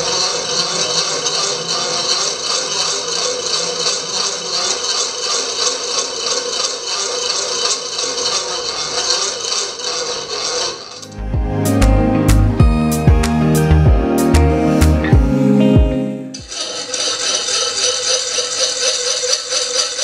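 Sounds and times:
music: 0:11.1 - 0:16.4.

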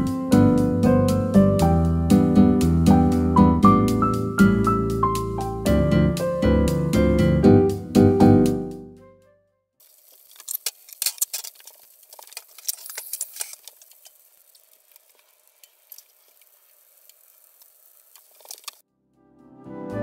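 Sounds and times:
rice crackling in frying pan: 0:09.8 - 0:18.8.

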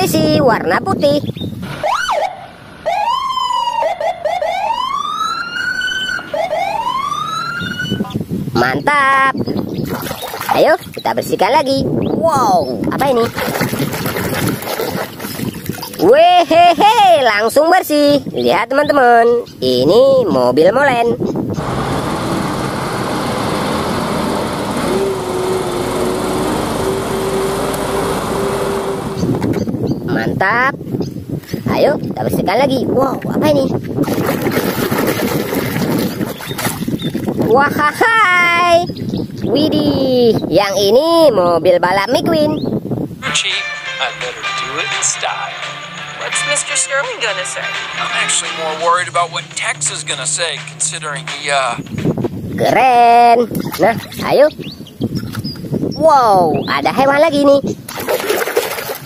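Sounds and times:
police car siren: 0:01.7 - 0:08.1
truck diesel engine running: 0:21.6 - 0:29.4, 0:47.4 - 0:52.4
steady tone: 0:45.8 - 0:52.1.

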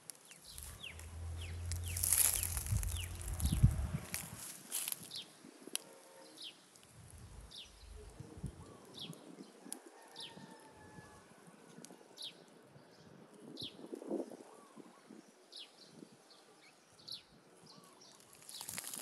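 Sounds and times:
small bird chirping: 0:00.1 - 0:04.3.

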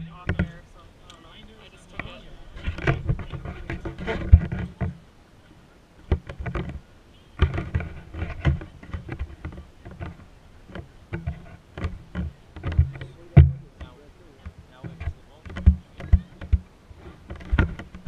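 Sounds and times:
fabric rubbing on camera: 0:02.0 - 0:04.8.

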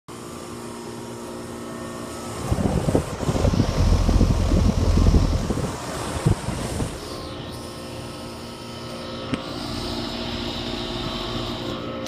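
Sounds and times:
heat pump motor hum: 0:00.1 - 0:12.0
wind buffeting microphone: 0:02.3 - 0:07.1.

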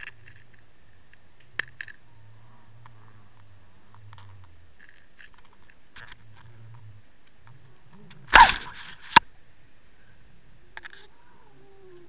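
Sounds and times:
faint scattered ticks: 0:00.0 - 0:09.3
sharp click: 0:08.0 - 0:09.2.

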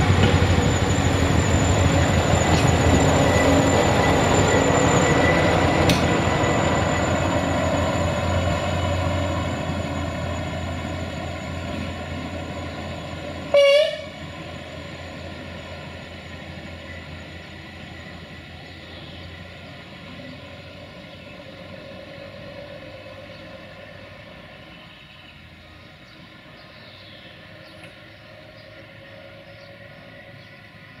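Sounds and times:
vehicle engine droning: 0:00.0 - 0:31.0
horn toot: 0:13.5 - 0:14.2.

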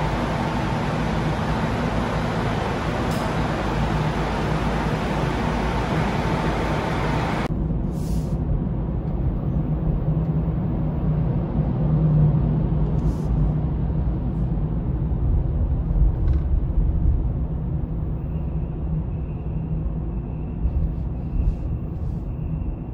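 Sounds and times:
loud rushing noise: 0:00.0 - 0:07.6.

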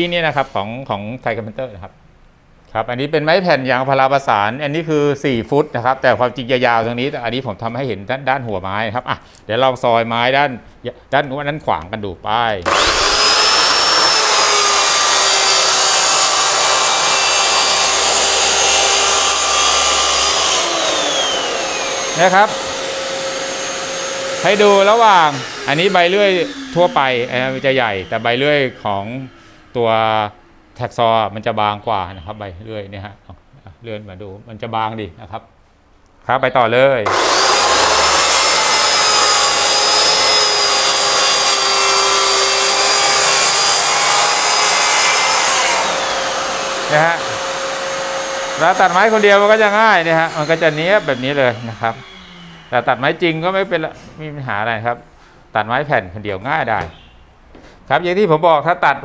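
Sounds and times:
dust extractor running: 0:12.6 - 0:29.7, 0:37.1 - 0:53.6
saw blade cutting wood panel: 0:12.6 - 0:29.7, 0:37.0 - 0:53.6
track saw whining: 0:12.6 - 0:30.0, 0:37.0 - 0:53.8.

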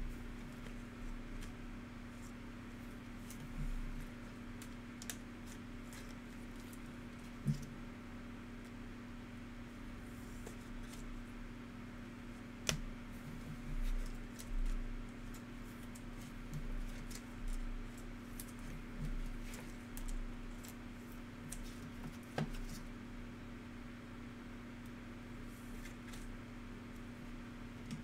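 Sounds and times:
steady low hum: 0:00.0 - 0:28.0
cards shuffled and tapped: 0:03.2 - 0:07.7, 0:12.6 - 0:20.8, 0:21.5 - 0:22.9.

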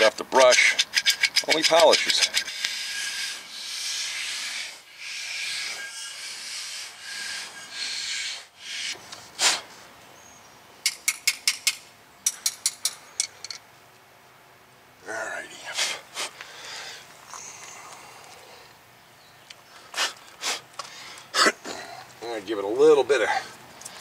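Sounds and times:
hand file rasping metal: 0:00.4 - 0:08.9.

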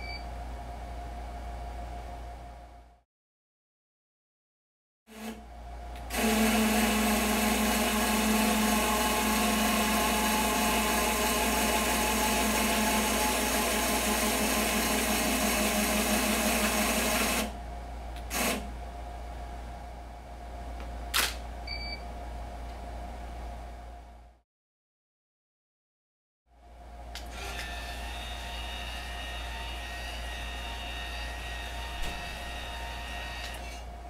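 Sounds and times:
electric motor running: 0:27.3 - 0:33.8.

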